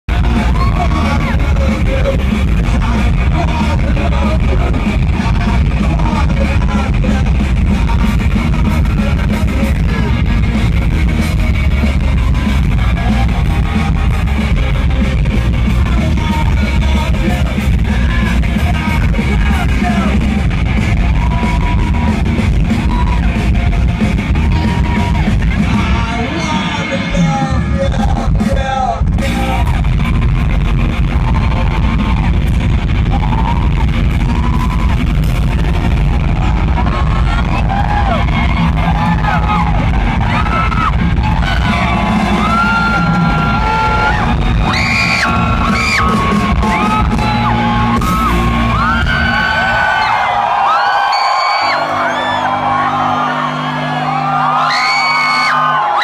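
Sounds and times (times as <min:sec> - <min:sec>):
rock band playing loudly: 0:00.0 - 0:56.0
person singing: 0:00.1 - 0:10.7, 0:11.9 - 0:22.2
voices yelling: 0:36.7 - 0:56.0.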